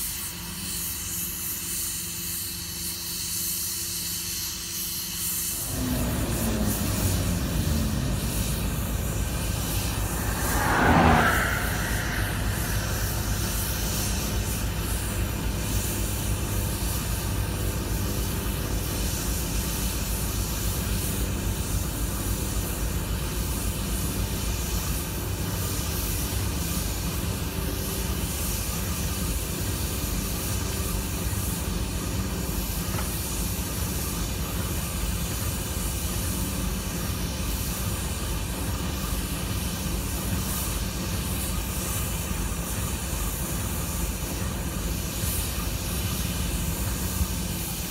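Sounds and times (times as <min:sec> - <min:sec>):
locomotive engine drone: 0:05.2 - 0:47.9
car road and wind noise: 0:05.6 - 0:17.8.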